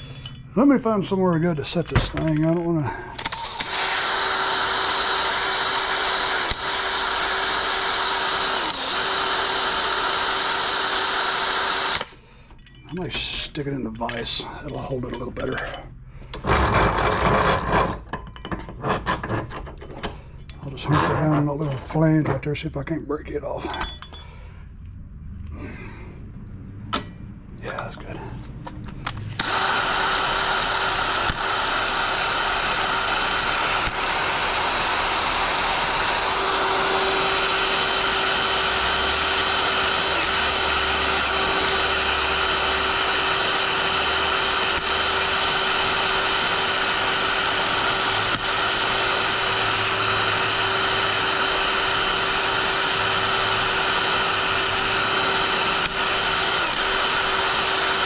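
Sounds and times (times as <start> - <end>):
cordless drill with wire brush: 3.2 - 12.2, 29.3 - 58.0.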